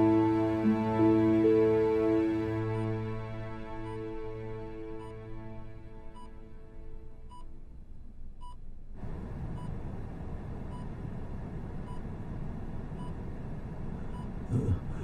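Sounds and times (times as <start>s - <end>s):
patient monitor beeping: 3.8s - 4.1s, 4.9s - 5.3s, 13.0s - 13.2s, 14.1s - 15.0s.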